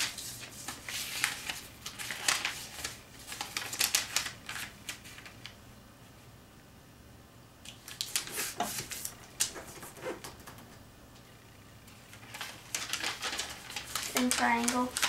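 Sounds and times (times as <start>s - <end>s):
paper rustling as folded: 0.0s - 5.6s, 7.7s - 10.4s, 11.9s - 15.0s.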